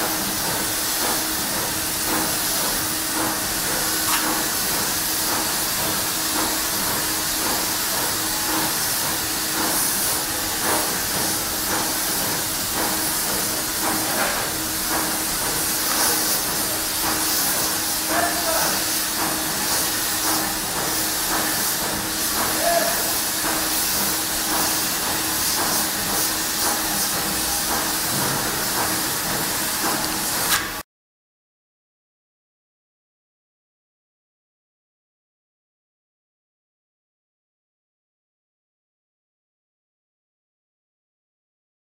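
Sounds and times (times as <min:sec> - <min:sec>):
spray gun hissing: 0:00.1 - 0:30.5.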